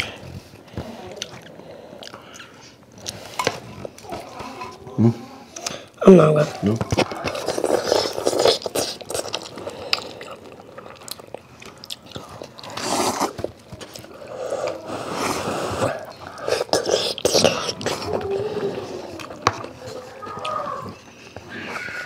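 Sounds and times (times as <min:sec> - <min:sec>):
people chewing: 0:00.0 - 0:22.0
slurping noodles: 0:06.9 - 0:22.0.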